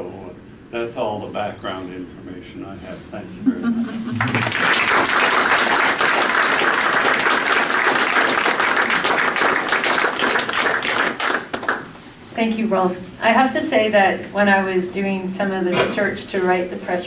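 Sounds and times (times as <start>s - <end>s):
audience clapping: 4.1s - 12.0s.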